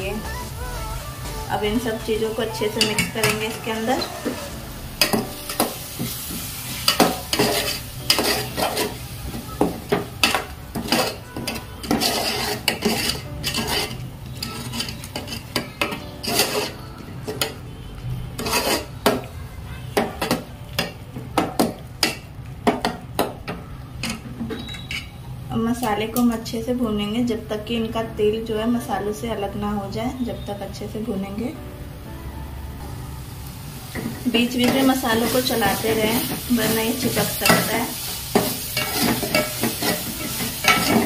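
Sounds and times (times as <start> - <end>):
spices sizzling in oil: 0.0 - 17.6, 18.3 - 19.3, 33.0 - 41.0
spatula scraping a metal pot: 6.8 - 17.6, 18.3 - 19.3, 34.6 - 41.0.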